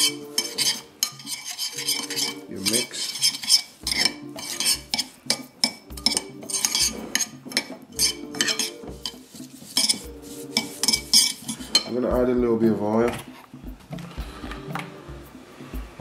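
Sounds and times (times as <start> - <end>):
metal spoon stirring in ceramic bowl: 0.0 - 12.0.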